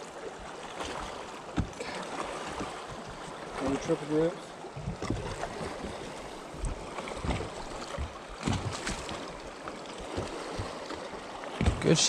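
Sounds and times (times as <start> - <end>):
water lapping against hull: 0.0 - 12.0
knocks on boat: 1.5 - 1.9, 2.5 - 3.0, 4.8 - 5.5, 6.6 - 9.1, 11.5 - 12.0.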